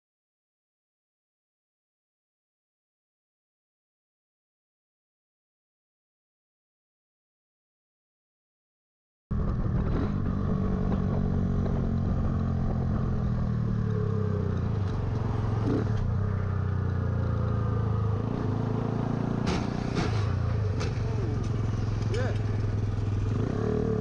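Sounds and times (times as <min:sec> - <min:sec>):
motorcycle engine cruising: 0:09.3 - 0:24.0.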